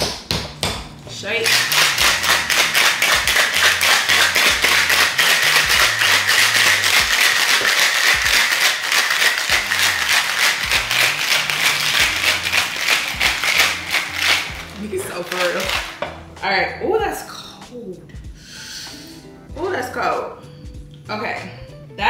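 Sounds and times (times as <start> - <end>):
ice rattling in cocktail shaker: 1.4 - 16.1.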